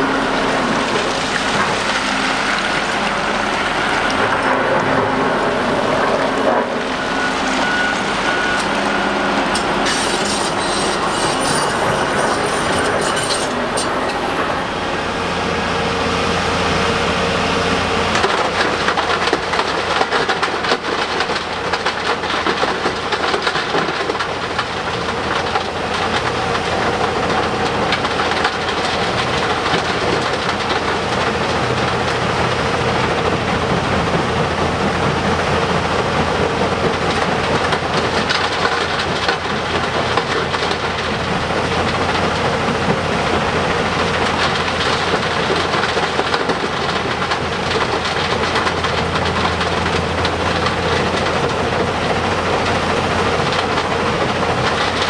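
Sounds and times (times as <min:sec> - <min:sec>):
heavy diesel engines running: 0:00.0 - 0:55.0
rattling and rumbling: 0:18.1 - 0:55.0.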